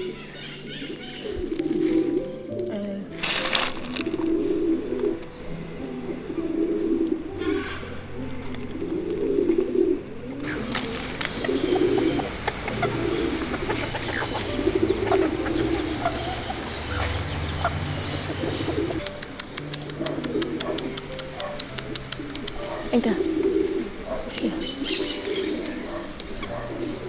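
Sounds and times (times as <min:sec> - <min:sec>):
small birds chirping: 0:00.0 - 0:03.0, 0:04.3 - 0:07.9, 0:10.4 - 0:27.0
doves cooing: 0:00.0 - 0:27.0
quick sharp ticks: 0:19.0 - 0:22.8.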